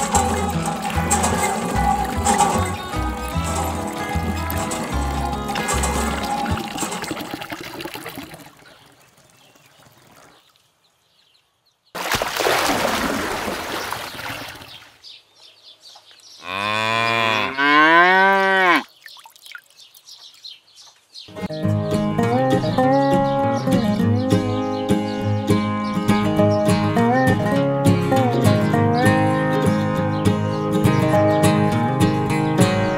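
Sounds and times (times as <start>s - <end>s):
background music: 0.0s - 7.4s, 21.3s - 32.9s
water pouring: 0.0s - 10.4s, 12.0s - 14.9s, 18.9s - 20.0s
cow mooing: 16.4s - 18.9s.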